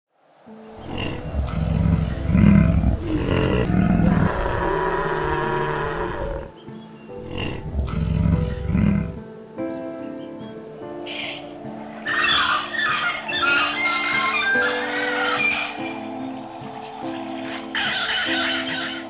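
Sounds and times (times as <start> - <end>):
background music: 0.2 - 19.0
lion roaring: 0.8 - 6.6, 7.2 - 9.2.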